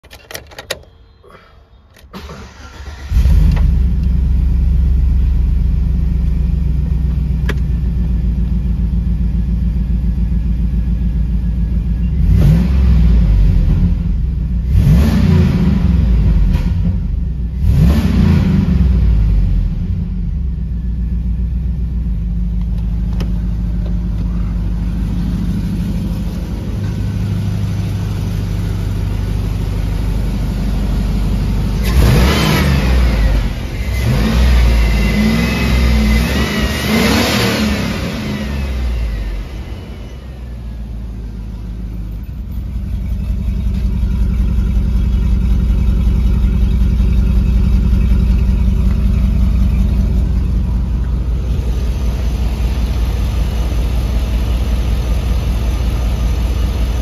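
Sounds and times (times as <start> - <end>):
engine cranking: 2.0 - 3.7
engine revving and idling: 2.5 - 57.0.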